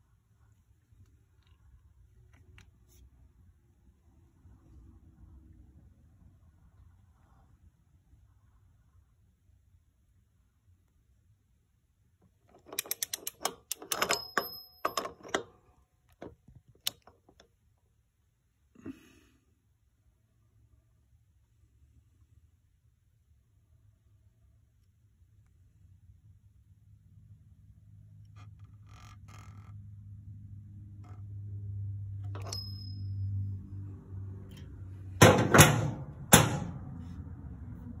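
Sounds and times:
low steady hum: 0.0 - 38.0
ratcheting wrench clicking: 12.5 - 15.4
light click with high ring: 32.4 - 33.4
loud sharp knocks: 35.2 - 36.8.

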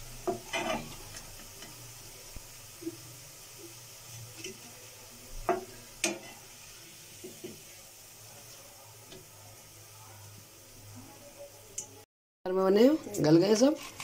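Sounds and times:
chips sizzling in hot oil: 0.0 - 12.0, 12.7 - 14.0
metal spatula scraping a pan: 0.2 - 1.8, 5.5 - 6.5, 13.0 - 14.0.

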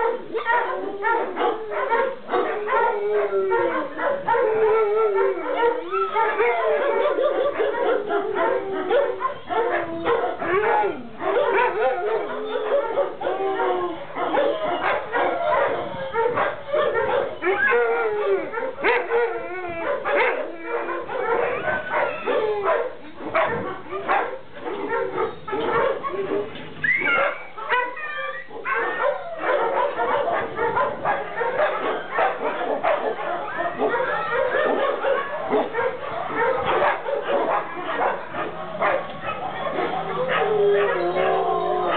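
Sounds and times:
dogs barking and yipping: 0.0 - 41.9
dogs howling: 0.0 - 41.9
dog whining yelp: 25.8 - 30.2, 39.2 - 41.9.

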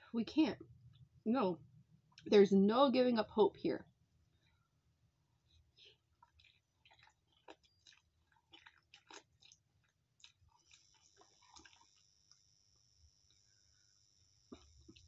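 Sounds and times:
close-up chewing noodles: 5.4 - 13.5, 14.4 - 15.0
faint high whine: 10.7 - 15.0.

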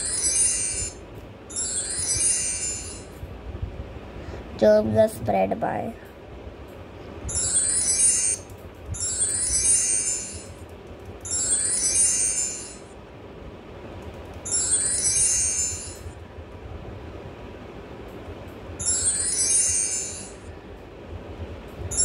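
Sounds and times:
high-pitched shimmering chime: 0.0 - 3.2, 7.3 - 8.4, 9.0 - 10.6, 11.2 - 12.9, 14.5 - 16.2, 18.8 - 20.5.

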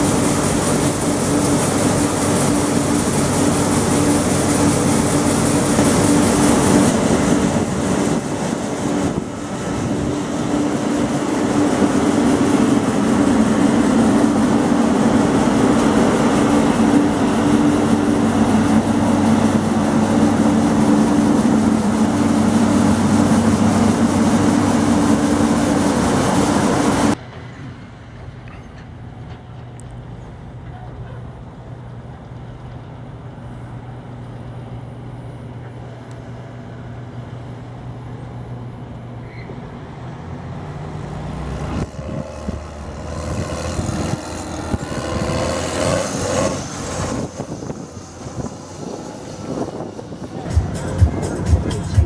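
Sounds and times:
combine harvester droning: 0.0 - 52.0
distant machinery hum: 0.0 - 52.0
grain hissing from auger: 41.8 - 50.0.

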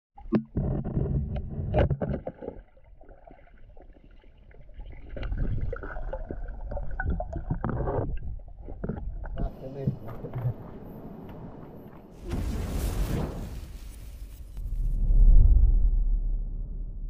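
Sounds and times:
underwater clicks and knocks: 0.2 - 2.9, 5.1 - 12.1
muffled underwater rumbling: 0.2 - 17.0.

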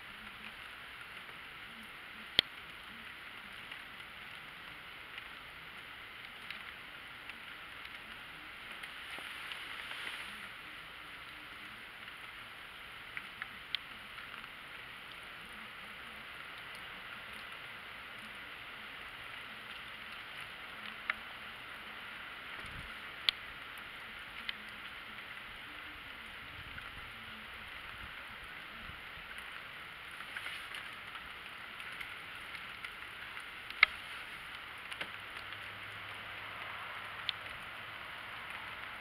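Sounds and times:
snowstorm hiss: 0.0 - 39.0
faint distant road traffic: 29.2 - 39.0.

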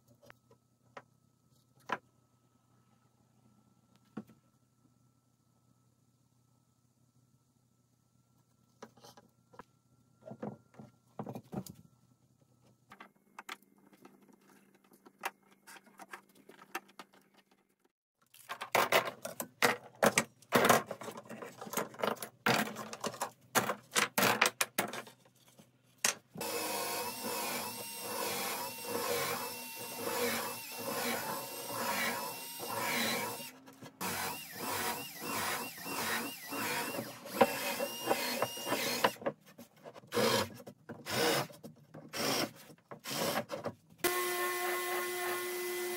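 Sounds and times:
cordless drill running: 26.4 - 39.2, 40.1 - 40.5, 41.1 - 41.5, 42.1 - 43.4, 44.0 - 45.9.

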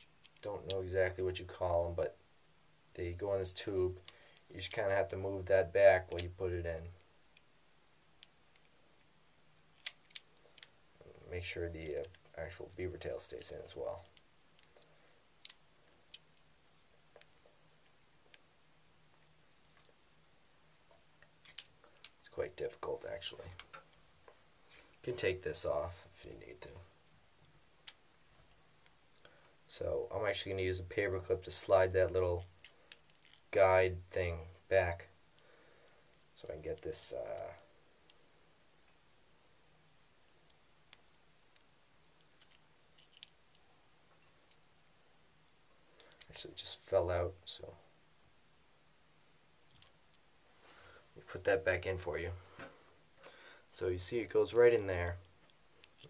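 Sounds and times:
pistol parts clicking: 9.8 - 10.7, 14.0 - 16.3, 55.4 - 56.0
small metal parts clicking: 9.8 - 10.7, 14.0 - 16.9, 21.4 - 22.2, 32.6 - 33.5, 40.9 - 44.6, 49.7 - 50.2, 55.4 - 56.0.

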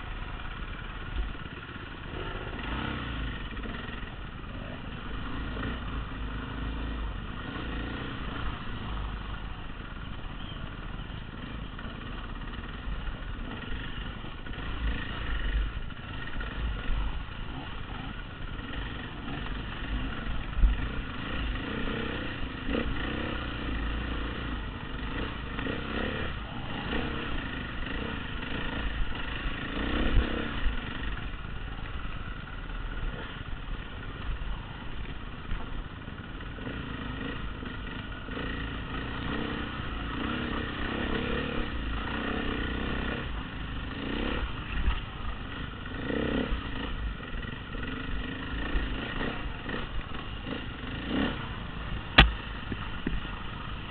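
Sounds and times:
dirt bike engine: 0.0 - 53.9
sharp knocks over rough ground: 52.1 - 53.3.

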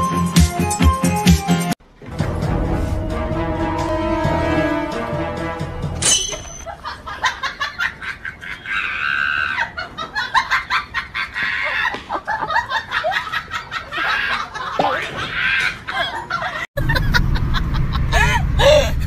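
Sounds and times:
backing music: 0.0 - 6.2.

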